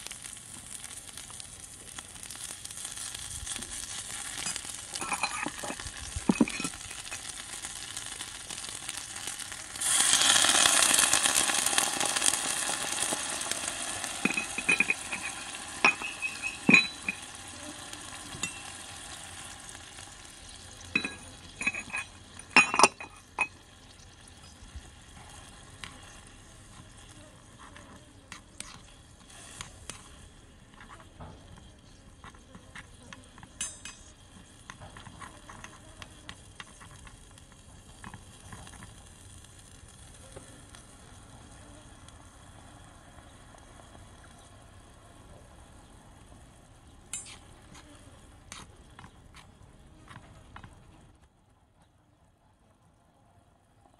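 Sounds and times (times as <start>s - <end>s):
food sizzling in a wok: 0.0s - 51.1s
metal spoon scraping and clinking wok: 3.9s - 7.5s, 12.2s - 17.4s, 18.3s - 18.9s, 20.8s - 23.6s, 33.4s - 35.8s, 47.1s - 47.5s.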